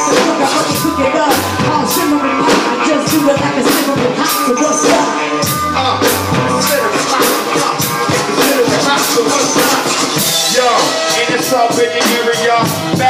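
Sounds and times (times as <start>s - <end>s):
hip hop beat: 0.0s - 13.0s
low bass note: 0.7s - 2.4s, 5.4s - 7.1s.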